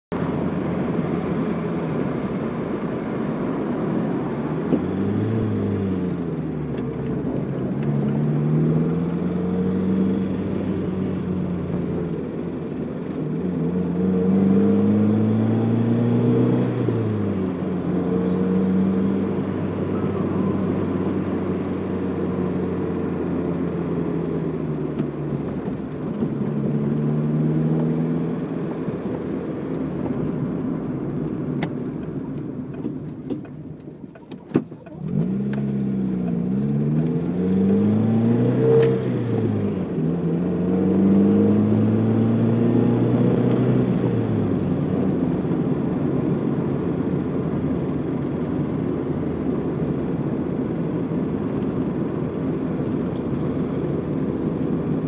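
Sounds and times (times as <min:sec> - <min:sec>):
road noise rumble: 0:00.1 - 0:55.0
car engine revving: 0:00.2 - 0:33.3, 0:34.6 - 0:55.0.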